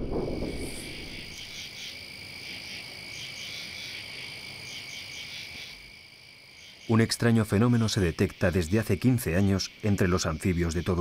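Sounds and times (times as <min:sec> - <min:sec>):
low rumble: 0:00.0 - 0:01.4
frogs chirping: 0:00.0 - 0:11.0
frogs trilling: 0:00.2 - 0:11.0.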